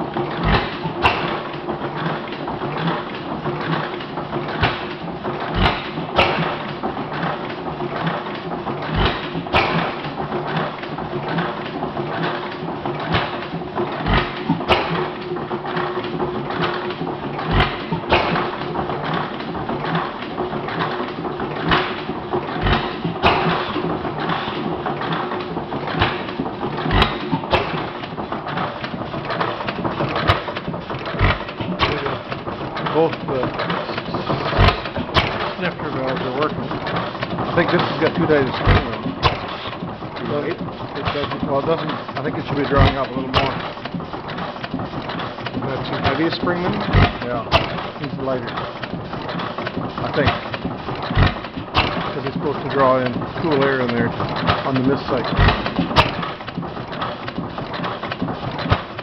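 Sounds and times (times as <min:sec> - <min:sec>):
engine firing thumps: 0:00.0 - 0:59.0
clicking mechanism clatter: 0:00.3 - 0:59.0.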